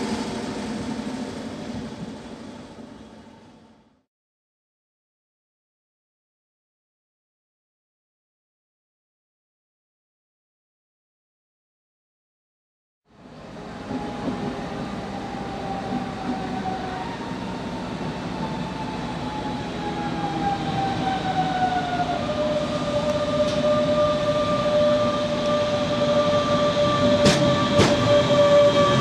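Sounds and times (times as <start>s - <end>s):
low train rumble: 0.0s - 4.0s, 13.1s - 29.0s
electric train traction whine: 13.2s - 29.0s.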